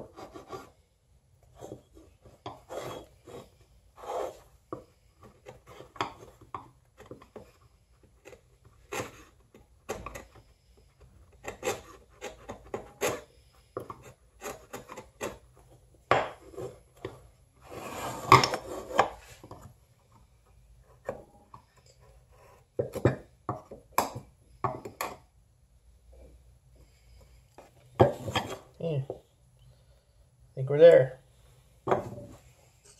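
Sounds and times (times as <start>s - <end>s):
chisel scraping wood: 1.6s - 4.5s, 7.0s - 10.5s, 11.3s - 15.6s.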